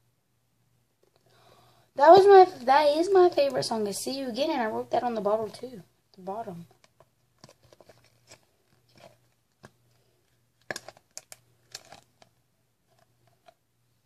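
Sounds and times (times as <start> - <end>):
plastic bottle crackling: 6.8 - 9.8, 10.6 - 12.3.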